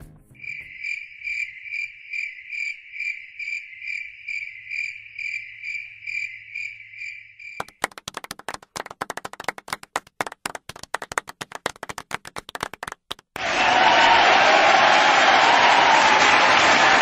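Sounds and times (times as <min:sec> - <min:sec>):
cricket chirping: 0:00.4 - 0:07.8.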